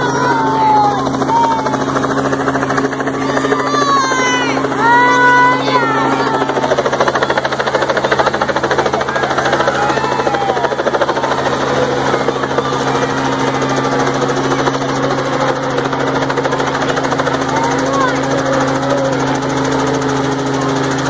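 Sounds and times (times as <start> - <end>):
helicopter flying overhead: 0.0 - 21.0.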